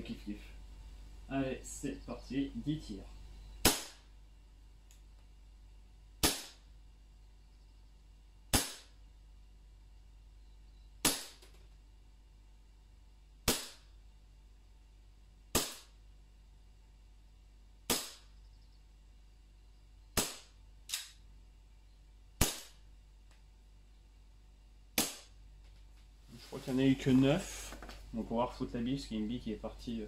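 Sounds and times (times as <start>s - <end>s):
airsoft pistol shots: 3.6s - 4.1s, 6.2s - 6.7s, 8.5s - 9.0s, 11.0s - 11.4s, 13.4s - 13.9s, 15.5s - 16.0s, 17.9s - 18.3s, 20.2s - 21.2s, 22.4s - 22.8s, 25.0s - 25.4s.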